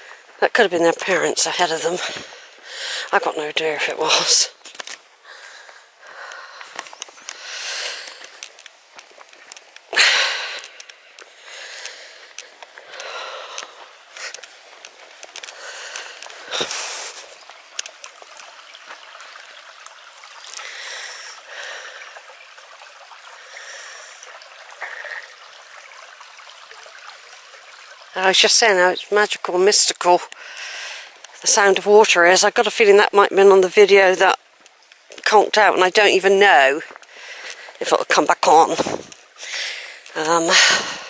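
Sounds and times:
stream trickling over stones: 0:00.0 - 0:41.0
footsteps through long grass: 0:06.6 - 0:10.0, 0:12.1 - 0:19.2.

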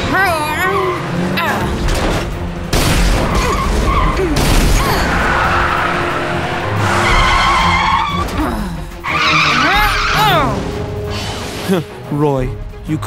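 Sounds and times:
tyres skidding: 0:00.0 - 0:12.2
background music: 0:00.0 - 0:13.0
cartoon engines whining: 0:03.1 - 0:08.4.

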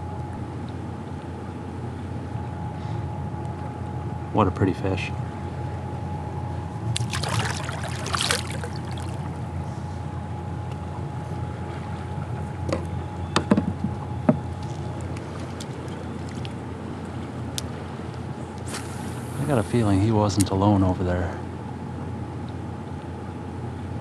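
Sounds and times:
wind: 0:00.0 - 0:24.0
fish splashing into water: 0:06.9 - 0:09.4
river water flowing: 0:06.9 - 0:09.5
knocks and clicks from kayak: 0:12.7 - 0:14.8.

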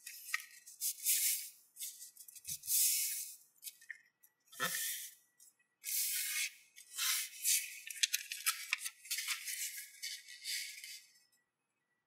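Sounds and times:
paper rustling and crinkling: 0:00.0 - 0:03.9, 0:05.9 - 0:11.1.

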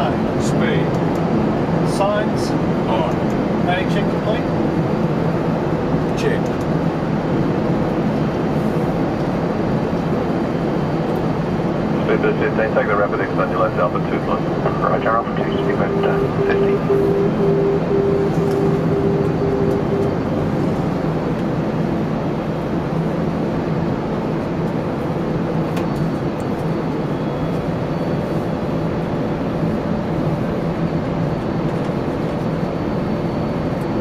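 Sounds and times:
rushing airflow and engine noise: 0:00.0 - 0:34.0
low steady hum: 0:11.9 - 0:23.1
repeating beep: 0:15.4 - 0:20.4.

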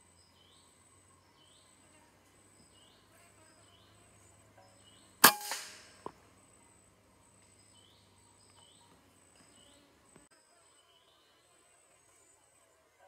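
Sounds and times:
air rifle shot: 0:05.2 - 0:06.0.

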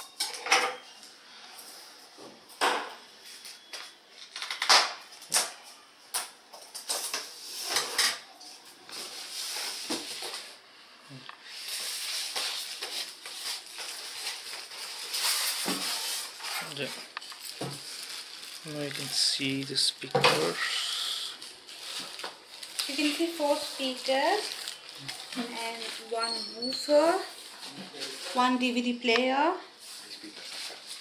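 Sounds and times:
plastic wrapping rustling: 0:06.6 - 0:31.0.

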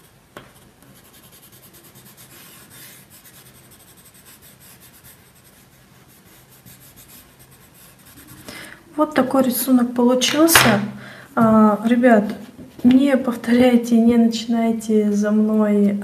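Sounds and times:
coloured pencil scratching on paper: 0:00.0 - 0:08.5.

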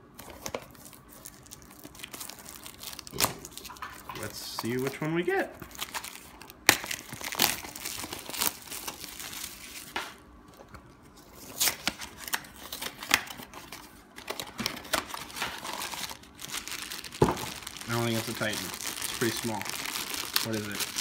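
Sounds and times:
foil wrapper crinkling: 0:00.2 - 0:10.0, 0:11.2 - 0:21.0
cardboard tearing: 0:14.3 - 0:21.0.

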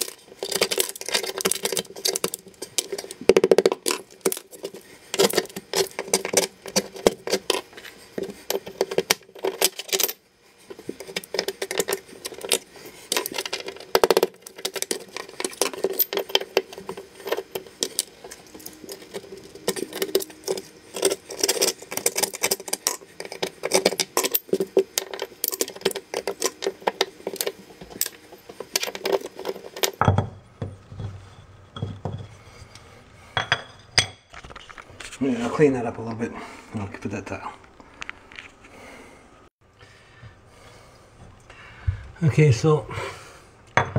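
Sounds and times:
hand tool scraping grout: 0:10.6 - 0:30.0.

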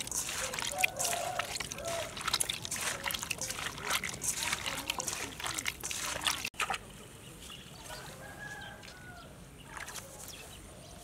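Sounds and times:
wet snails clattering in steel bowl: 0:00.0 - 0:06.5
rooster crowing: 0:00.7 - 0:02.1, 0:07.9 - 0:09.3.

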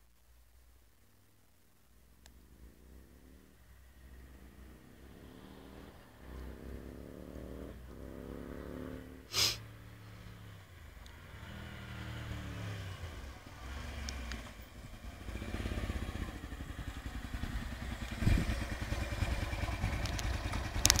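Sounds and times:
motorcycle engine shifting gears: 0:02.3 - 0:21.0
brief sharp noise: 0:09.3 - 0:09.6.

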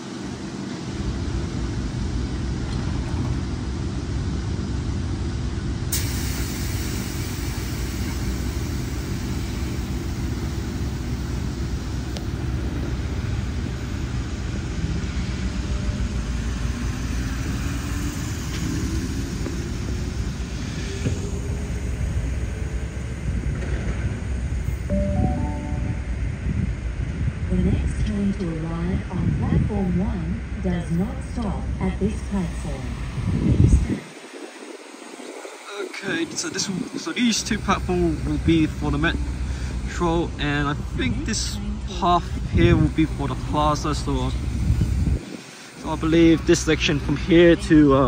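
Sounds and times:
electric train rumbling: 0:00.0 - 0:48.0
bright hiss: 0:05.9 - 0:12.2.

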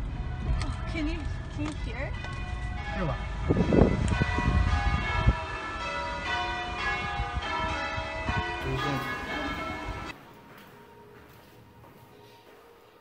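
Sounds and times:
church bells ringing: 0:00.0 - 0:13.0
faint background noise: 0:08.6 - 0:13.0.

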